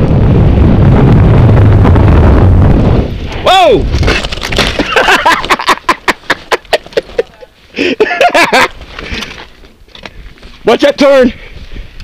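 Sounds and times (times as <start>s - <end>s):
bike rattling over rocks: 3.8s - 5.8s.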